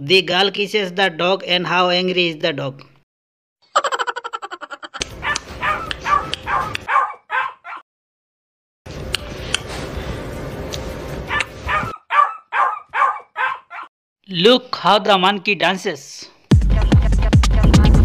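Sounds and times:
husky yipping and grumbling: 5.2s - 7.8s, 11.3s - 13.9s.

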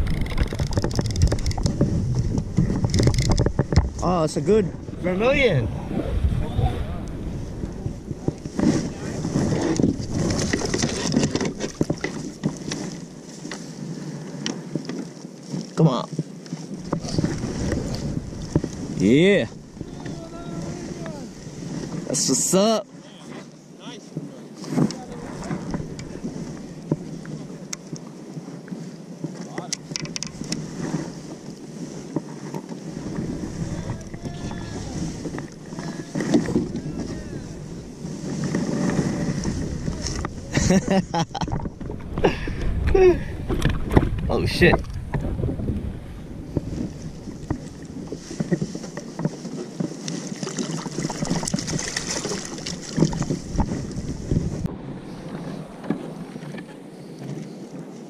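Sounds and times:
knocks and taps on kayak: 0.0s - 4.2s, 7.6s - 13.7s, 14.3s - 21.2s, 24.1s - 28.5s, 29.2s - 30.7s, 32.0s - 37.2s, 38.3s - 57.4s
wind buffeting microphone: 0.0s - 15.2s, 16.6s - 22.7s, 24.7s - 27.8s, 29.6s - 57.4s
sea wash: 0.0s - 58.0s
water washing: 33.0s - 56.5s.

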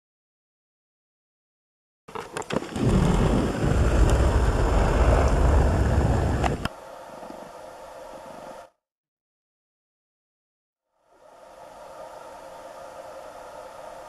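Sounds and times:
loud low rumbling: 2.8s - 6.7s
faint steady hiss: 3.8s - 8.7s, 11.0s - 14.0s.

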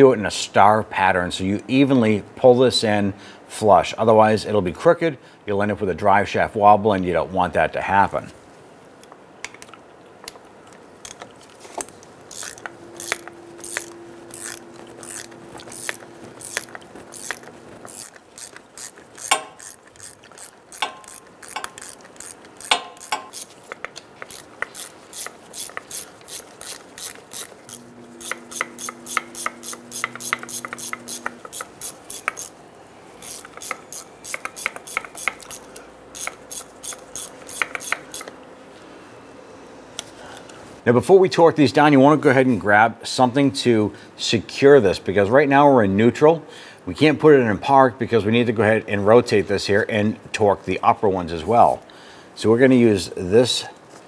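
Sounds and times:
socket ratchet clicking: 12.3s - 32.6s, 33.2s - 38.4s.

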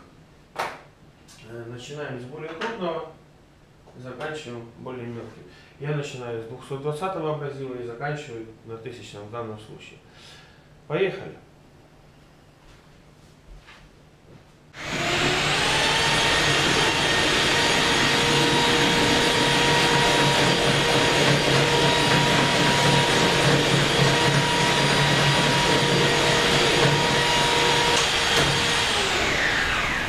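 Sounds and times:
rotary hammer drill running: 14.8s - 30.0s.

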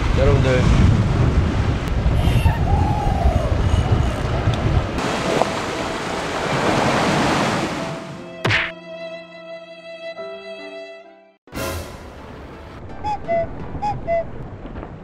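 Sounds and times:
wind buffeting microphone: 0.0s - 7.1s
waves washing on rocky shore: 4.9s - 8.0s.

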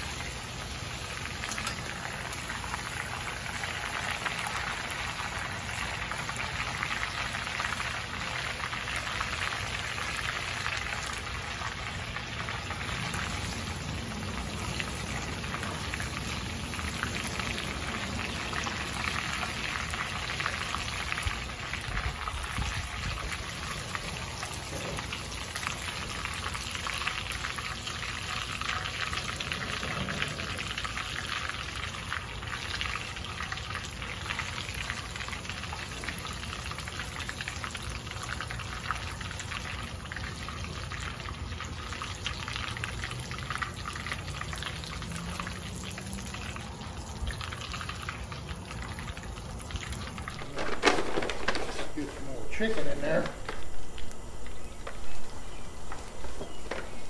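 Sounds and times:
hot oil sizzling and crackling: 0.0s - 57.0s.

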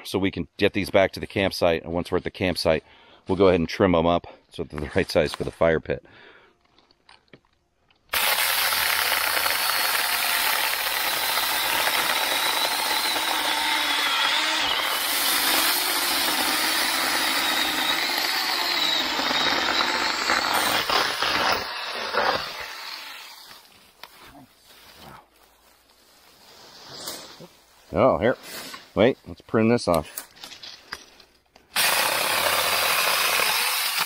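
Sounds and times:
mini chainsaw cutting log: 8.1s - 23.7s, 31.7s - 34.0s.

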